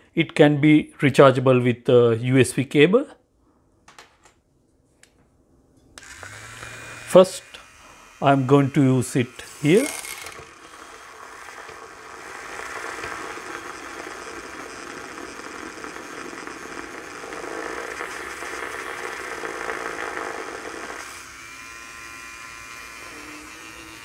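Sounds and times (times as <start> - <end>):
milk frother motor whining: 6.0 - 24.0
milk frother whirring in liquid: 6.0 - 24.0.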